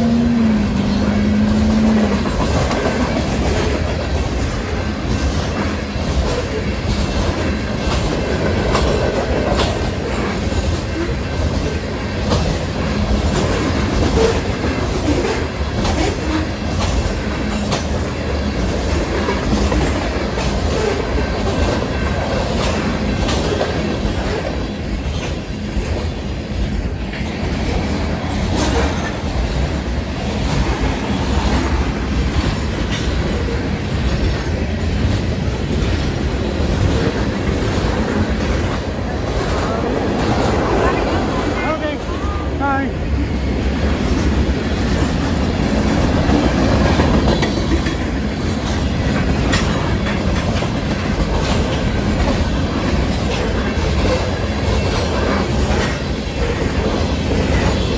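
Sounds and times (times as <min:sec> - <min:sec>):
wheels clacking over rail joints: 0:00.0 - 0:42.0, 0:43.4 - 0:57.9
train rumbling past: 0:00.0 - 0:57.9.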